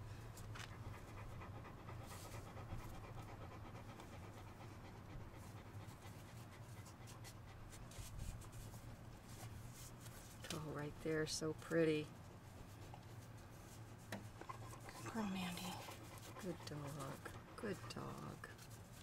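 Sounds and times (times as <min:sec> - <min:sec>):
puppy panting: 0:00.5 - 0:07.9, 0:14.3 - 0:19.0.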